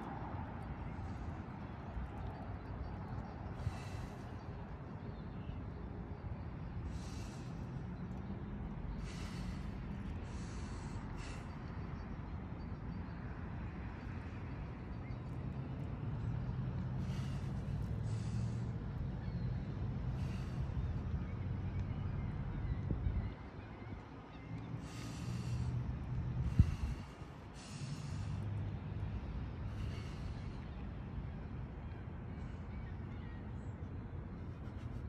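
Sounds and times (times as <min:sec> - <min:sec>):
man breathing through nose: 0:03.6 - 0:04.5, 0:06.8 - 0:08.0, 0:08.9 - 0:12.1, 0:16.8 - 0:19.0, 0:20.1 - 0:21.0, 0:24.7 - 0:31.0
steady low rumble: 0:24.7 - 0:35.0.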